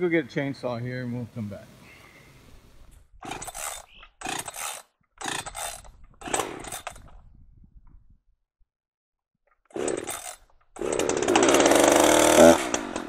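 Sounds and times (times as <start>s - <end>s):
chainsaw starter cord pulls: 2.9s - 7.4s, 9.5s - 13.0s
chainsaw engine turning over: 3.2s - 7.2s, 9.7s - 13.0s.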